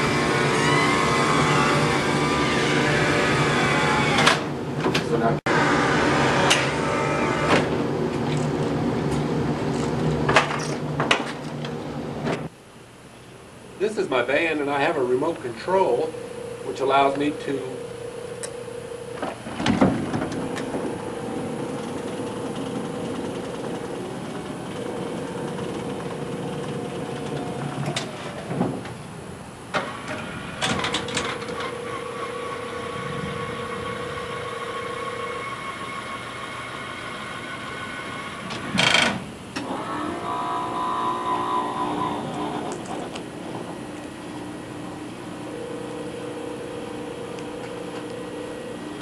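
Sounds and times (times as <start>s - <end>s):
electric lift motor humming: 0.0s - 4.8s, 5.4s - 12.5s, 15.2s - 49.0s
mechanical clicks and clunks: 29.7s - 32.6s.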